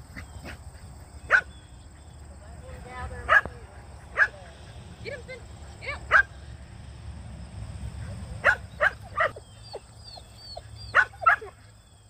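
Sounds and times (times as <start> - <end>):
dog barking: 1.3 - 1.5, 3.3 - 3.5, 4.2 - 4.4, 6.1 - 6.3, 8.4 - 9.8, 10.9 - 11.6.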